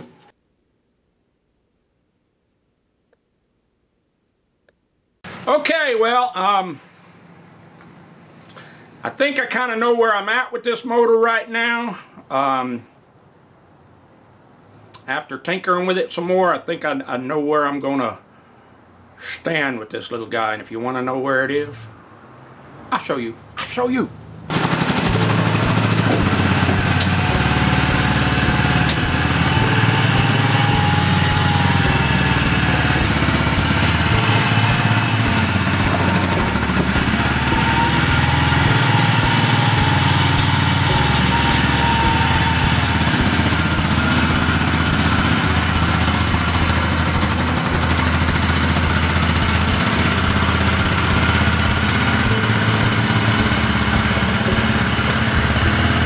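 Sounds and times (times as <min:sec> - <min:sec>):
small tractor engine running: 0:24.5 - 0:56.0.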